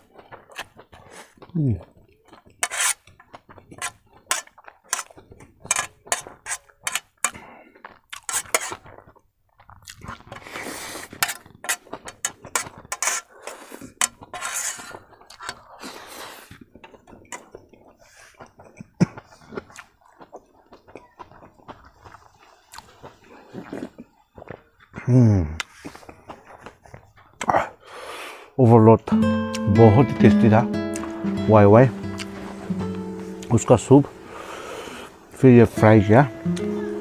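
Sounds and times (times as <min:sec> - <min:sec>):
chewing: 0:00.0 - 0:27.8, 0:32.1 - 0:32.7
slurping noodles: 0:09.7 - 0:16.7, 0:22.2 - 0:24.1, 0:34.2 - 0:35.4.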